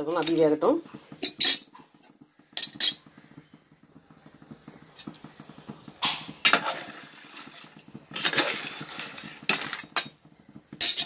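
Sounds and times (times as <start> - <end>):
gravy bubbling: 0.0 - 10.8
metal ladle scraping a pot: 1.1 - 1.8, 2.6 - 3.2, 6.4 - 10.2.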